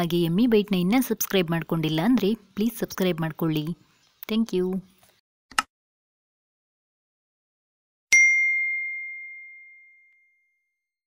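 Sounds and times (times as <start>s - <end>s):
bell ding: 8.1s - 10.7s.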